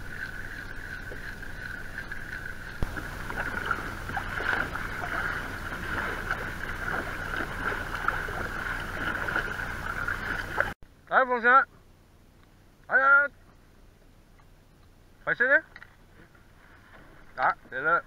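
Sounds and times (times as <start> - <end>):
high-pitched hum: 0.0 - 10.8
paddle splashing in water: 0.0 - 10.8
water sloshing at hull: 0.0 - 10.8, 16.0 - 17.8.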